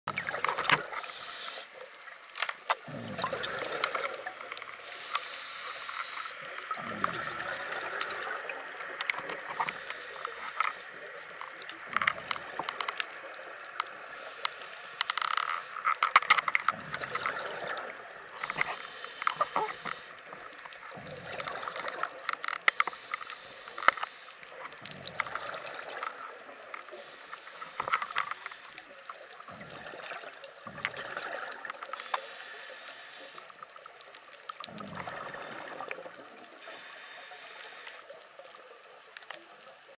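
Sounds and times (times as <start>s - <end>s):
sharp crackling clicks: 0.1s - 39.9s
regulator hiss: 0.9s - 1.8s, 4.8s - 6.6s, 18.4s - 20.4s, 22.8s - 24.4s, 26.9s - 28.9s, 32.0s - 33.6s, 36.6s - 38.1s
rush of exhaled bubbles: 2.8s - 4.7s, 6.5s - 9.8s, 16.7s - 22.2s, 24.7s - 26.4s, 29.4s - 32.0s, 34.6s - 36.7s.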